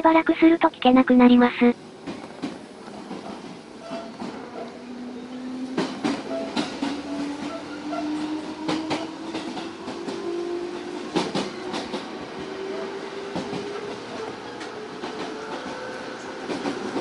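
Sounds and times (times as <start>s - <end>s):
train wheels clacking over rail joints: 2.0s - 4.8s, 5.4s - 12.5s, 13.3s - 17.0s.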